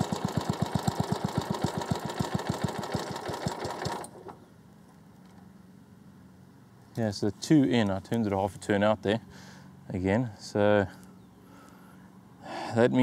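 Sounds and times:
lawnmower engine idling: 0:00.0 - 0:04.5.

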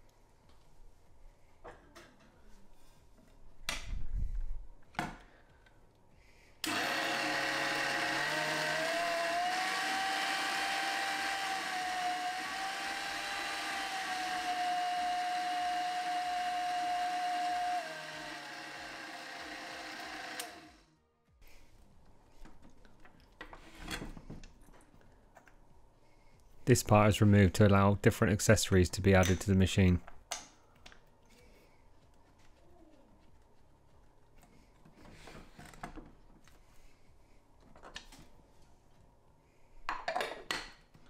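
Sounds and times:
food mixer motor whining: 0:06.6 - 0:20.9.

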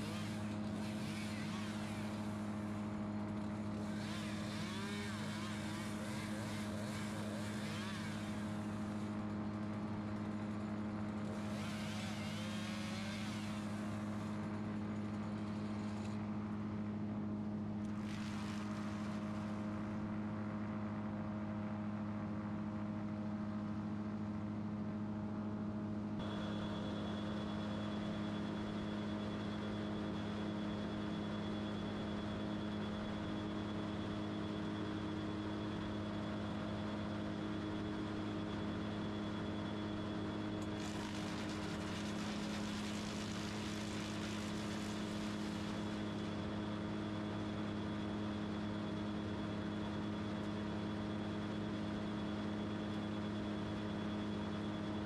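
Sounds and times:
chainsaw cutting branches: 0:00.0 - 0:09.2, 0:11.2 - 0:14.4, 0:40.6 - 0:46.4
engine running: 0:00.0 - 0:16.2, 0:35.9 - 0:49.5
faint high whine: 0:26.2 - 0:55.0.

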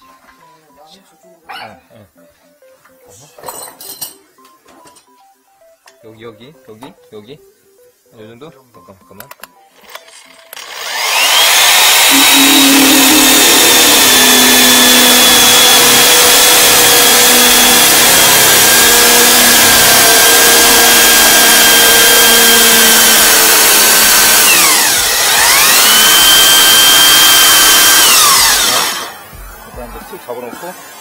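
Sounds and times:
core drill cutting into wall: 0:10.5 - 0:29.3.

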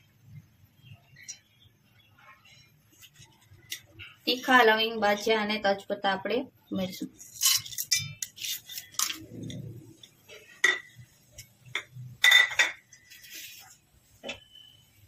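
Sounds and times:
ceramic bowl clinking against pot: 0:11.7 - 0:12.8.

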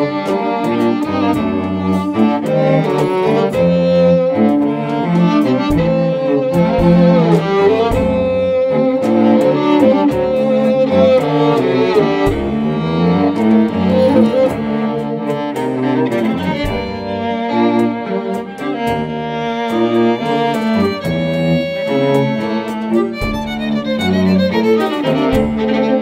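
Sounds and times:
drum and percussion strokes: 0:00.0 - 0:26.0
string quartet playing tango: 0:00.0 - 0:26.0.

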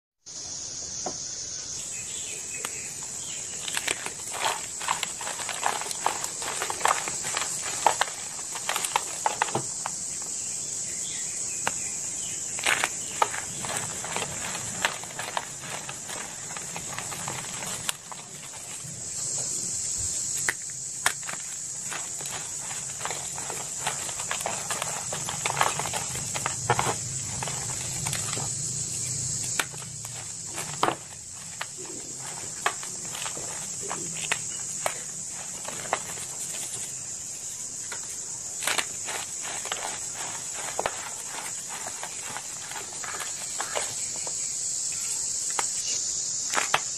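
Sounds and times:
steady high hiss: 0:00.2 - 0:03.6, 0:16.5 - 0:23.0, 0:25.4 - 0:46.9
chalk crunching in hands: 0:02.6 - 0:10.3, 0:11.7 - 0:45.9
sharp snaps: 0:20.3 - 0:21.4.

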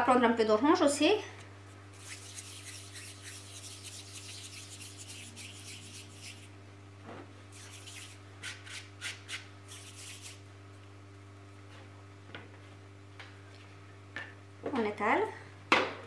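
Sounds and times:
faint steady hum: 0:00.0 - 0:16.0
hands rubbing sugarpaste: 0:01.7 - 0:06.6, 0:07.5 - 0:10.4.

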